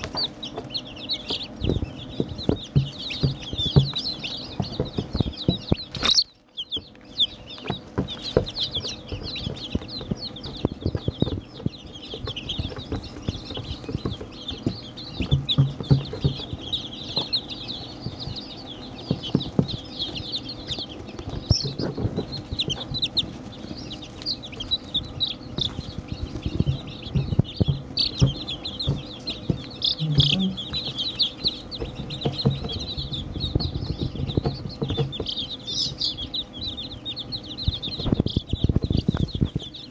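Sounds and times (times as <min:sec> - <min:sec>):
chicks peeping: 0:00.0 - 0:39.9
knocks and rustles at microphone: 0:31.8 - 0:35.4.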